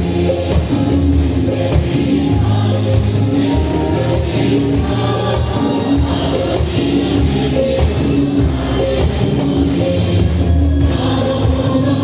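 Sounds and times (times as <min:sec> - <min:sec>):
fast high percussion beat: 0:00.0 - 0:12.0.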